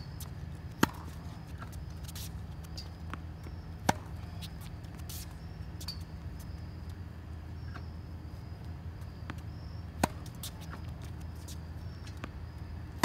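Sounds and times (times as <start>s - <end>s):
ball bouncing on court: 0.8s - 1.2s, 2.7s - 4.6s, 9.1s - 10.9s
tennis racket hitting ball: 3.8s - 4.4s, 10.0s - 10.8s.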